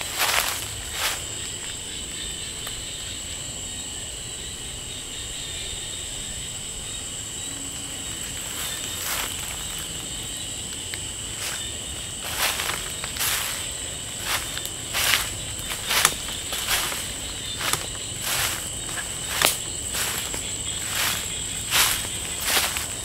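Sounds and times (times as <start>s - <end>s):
footsteps in leaf litter: 0.0s - 1.8s, 8.2s - 10.3s, 11.2s - 23.0s
night insects singing: 0.0s - 23.0s.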